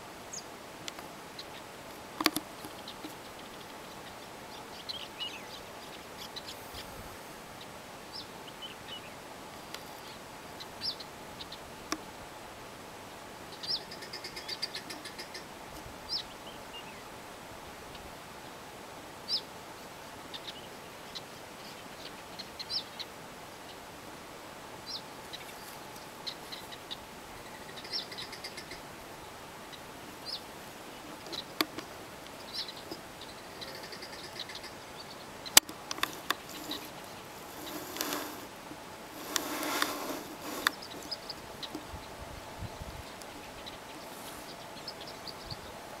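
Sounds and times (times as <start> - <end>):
birds chirping: 0.3 - 11.7, 13.5 - 15.5, 24.8 - 46.0
soft clicks: 35.5 - 36.9, 37.5 - 38.5
brief rustle: 35.6 - 38.5, 39.2 - 41.8.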